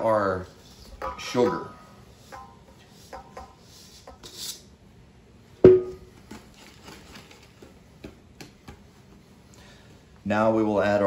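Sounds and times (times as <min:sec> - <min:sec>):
sugar scraping in metal bowl: 0:00.5 - 0:04.7
metal bowl clanking: 0:00.8 - 0:03.6, 0:05.6 - 0:06.1.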